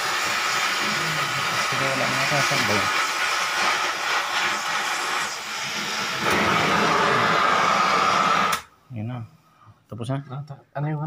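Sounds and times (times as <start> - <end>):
cutting torch hissing: 0.0 - 8.7.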